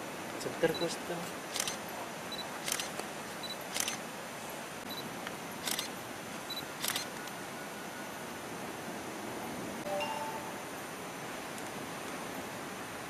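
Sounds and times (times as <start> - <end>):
camera shutter double click: 1.5 - 1.8, 2.6 - 2.9, 3.7 - 4.0, 5.6 - 5.9, 6.8 - 7.1.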